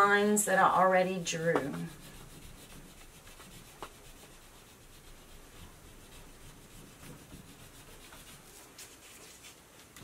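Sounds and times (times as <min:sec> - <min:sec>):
crayon rubbing on paper: 0:01.3 - 0:09.6.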